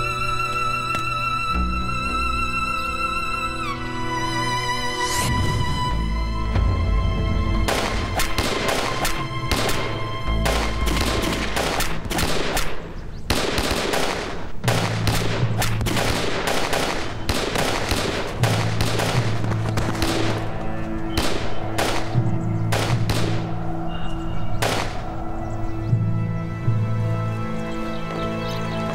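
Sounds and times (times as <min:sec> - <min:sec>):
low sustained film score: 0:00.0 - 0:28.9
rifle shots: 0:07.7 - 0:20.5, 0:21.1 - 0:23.5, 0:24.6 - 0:25.0.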